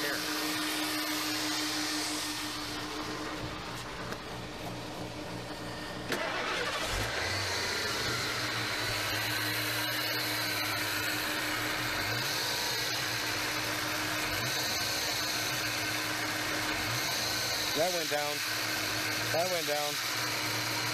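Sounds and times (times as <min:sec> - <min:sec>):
car engine starting and idling: 0:02.4 - 0:18.4.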